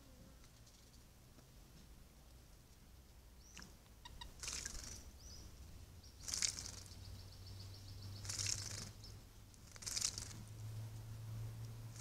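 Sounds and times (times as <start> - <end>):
bird splashing wings in water: 4.4 - 5.0, 6.2 - 6.9, 8.2 - 8.9, 9.6 - 10.4.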